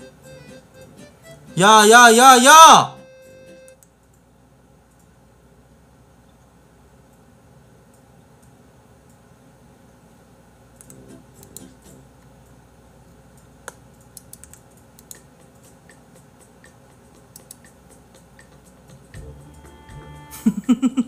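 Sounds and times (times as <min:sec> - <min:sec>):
keyboard and mouse clicks: 0:10.8 - 0:11.7, 0:13.3 - 0:17.8, 0:18.4 - 0:18.6.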